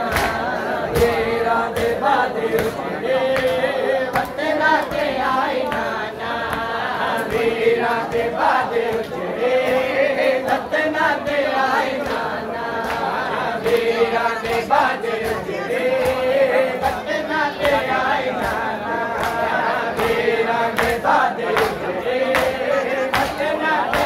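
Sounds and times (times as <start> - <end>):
hands slapping on chests: 0.0 - 10.8, 11.4 - 24.0
men chanting in unison: 0.0 - 24.0.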